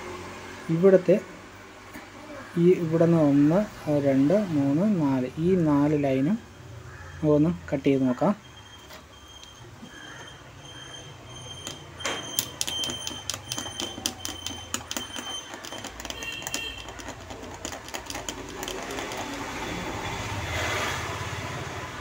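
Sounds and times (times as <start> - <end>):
blade scratching copper traces: 11.5 - 20.6.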